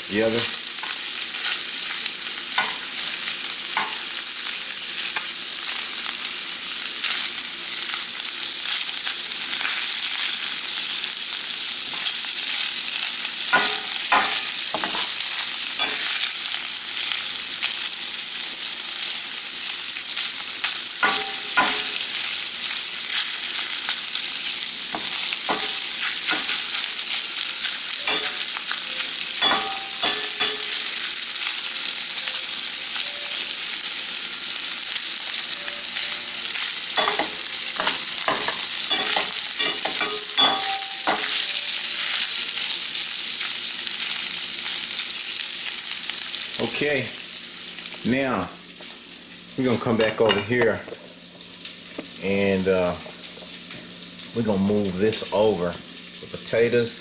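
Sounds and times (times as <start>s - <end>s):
meat sizzling in a skillet: 0.0s - 57.0s
metal spoon scraping a pan: 13.5s - 16.3s, 21.0s - 22.2s, 24.9s - 26.7s, 28.0s - 28.8s, 29.4s - 30.9s, 37.0s - 41.6s.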